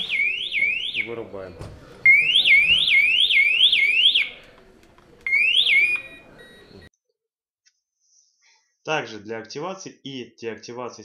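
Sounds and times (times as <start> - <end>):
muffled whooping alarm siren: 0.0 - 1.2, 2.1 - 4.4, 5.3 - 6.1.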